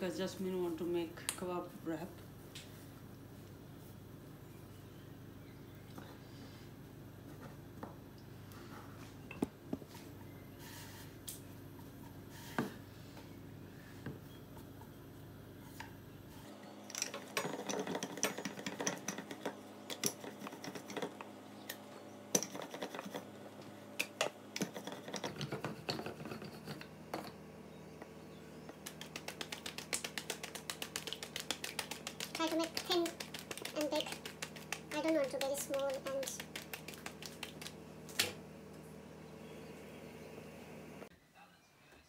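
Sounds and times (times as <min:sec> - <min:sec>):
dough slapped between palms: 0:28.7 - 0:38.4.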